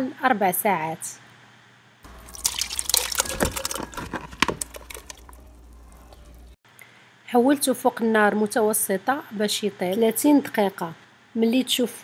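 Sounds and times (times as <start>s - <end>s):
fruit and syrup pouring into saucepan: 2.1s - 6.6s.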